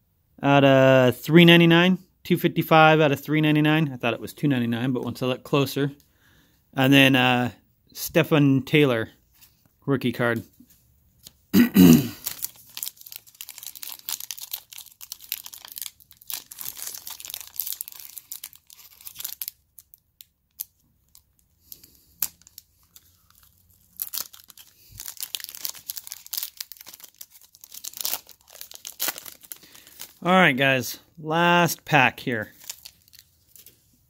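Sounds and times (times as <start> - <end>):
foil wrapper crinkling and tearing: 12.1 - 30.3, 31.7 - 34.0.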